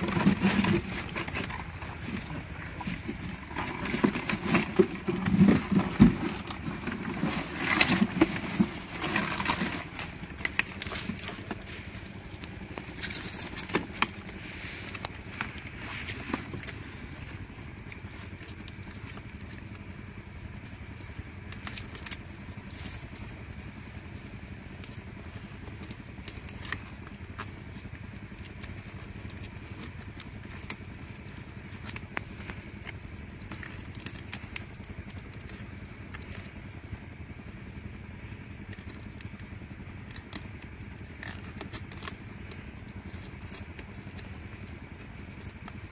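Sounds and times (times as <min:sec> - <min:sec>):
clicks and scrapes: 0:00.0 - 0:17.4.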